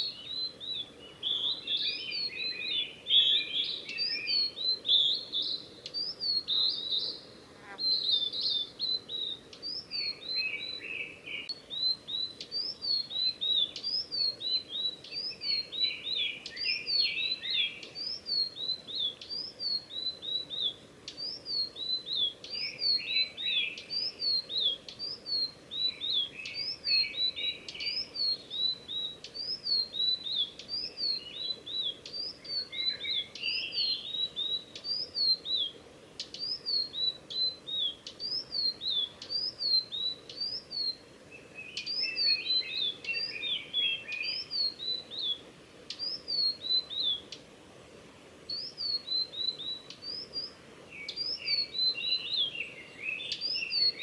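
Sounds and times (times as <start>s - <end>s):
bird singing whistled notes: 0.0s - 47.4s, 48.5s - 54.0s.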